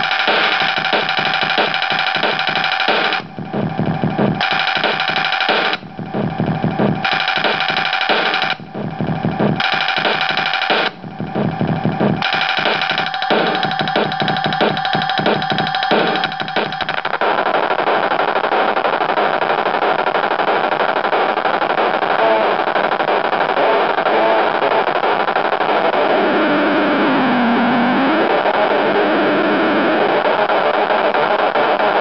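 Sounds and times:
rhythmic beat pattern: 0.0s - 17.4s
glitching keyboard drone: 0.0s - 32.0s.

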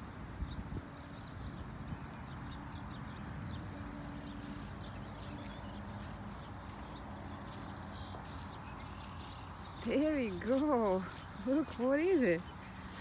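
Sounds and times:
footsteps on grass: 3.1s - 13.0s.

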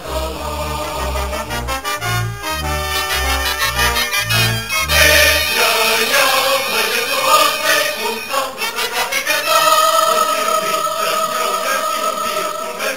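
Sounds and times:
choral singing: 0.0s - 2.0s, 2.6s - 12.9s.

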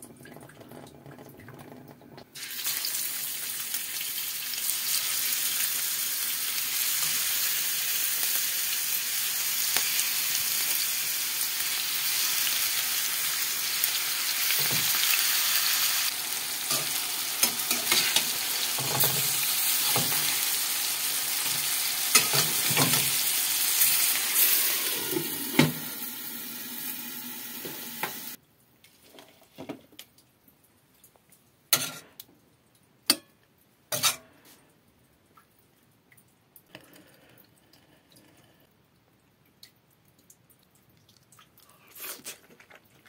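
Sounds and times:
patties sizzling in hot oil: 2.4s - 28.4s
metal spatula scraping a pan: 16.6s - 20.4s, 21.4s - 23.2s, 33.9s - 34.4s.

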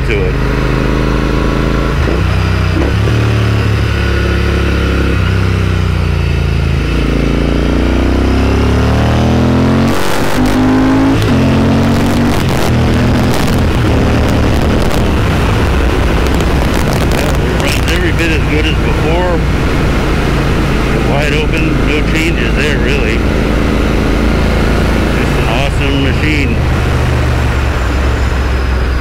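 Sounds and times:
motorcycle engine running: 0.0s - 29.0s
wind buffeting microphone: 12.2s - 22.6s.

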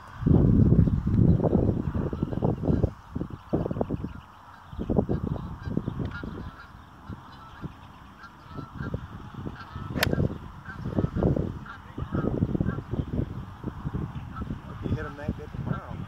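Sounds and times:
low rumbling gusts: 0.0s - 16.0s
golf club striking ball: 10.0s - 10.3s.

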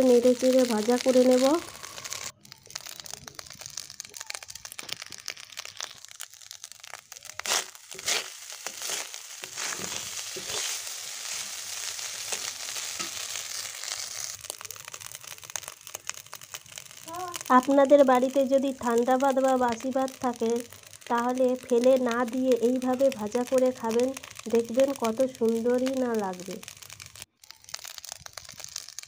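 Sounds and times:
rice sizzling in a pan: 0.0s - 29.0s
metal spatula scraping a pan: 7.4s - 14.3s.

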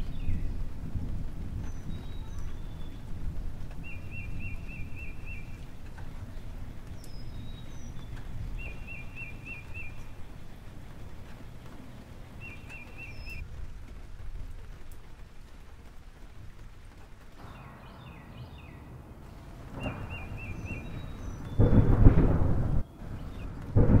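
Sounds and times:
birds chirping: 0.0s - 0.8s, 1.6s - 13.4s, 17.3s - 24.0s
rolling thunder: 0.0s - 24.0s
steady rushing noise: 2.6s - 24.0s
low rumble: 17.2s - 24.0s.

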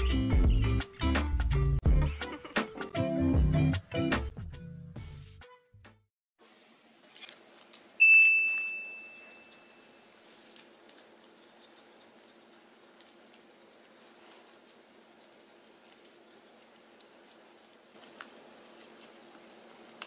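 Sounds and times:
music: 0.0s - 6.1s
low room hum: 6.4s - 20.0s
bright bell-like ding: 8.0s - 10.0s.

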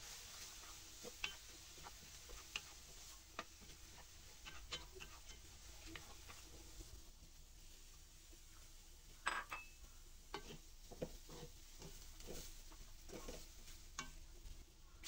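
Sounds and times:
spatula scraping metal pan: 0.1s - 6.6s, 10.3s - 14.2s.

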